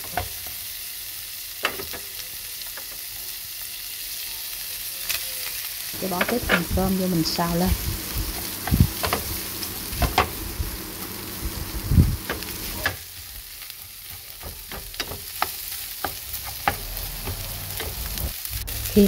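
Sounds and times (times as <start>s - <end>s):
food sizzling in a frying pan: 0.0s - 19.0s.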